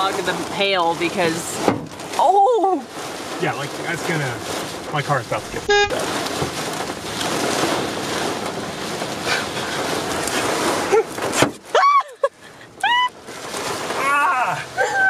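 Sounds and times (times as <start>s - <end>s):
hail and rain on car roof: 0.0s - 15.0s
person exclaiming: 14.0s - 15.0s.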